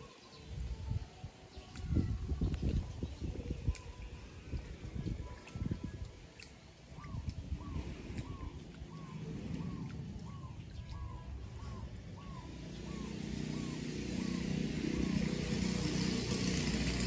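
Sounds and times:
low rumble: 0:07.1 - 0:16.4.

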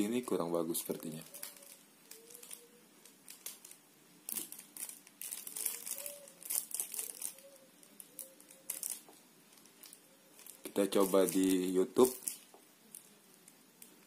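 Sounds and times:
crinkling and rustling: 0:00.0 - 0:14.0.

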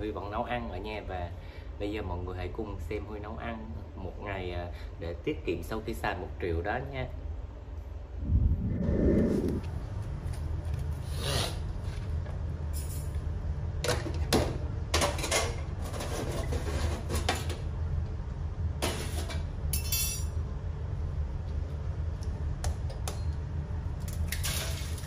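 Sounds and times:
steady low hum: 0:00.0 - 0:13.9.

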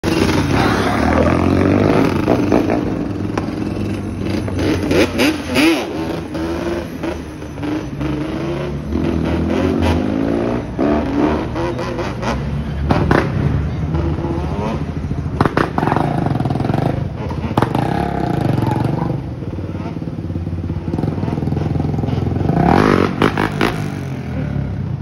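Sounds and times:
quad engines revving: 0:00.0 - 0:24.8.

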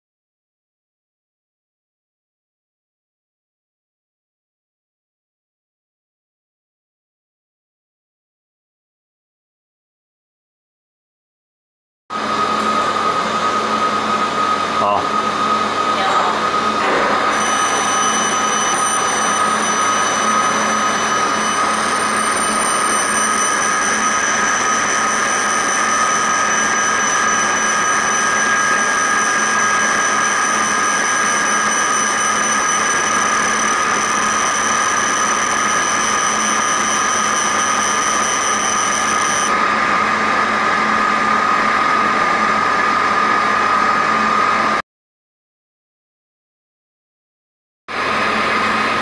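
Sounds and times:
laser machine hum: 0:12.2 - 0:39.7
high-pitched whine: 0:12.2 - 0:44.8.

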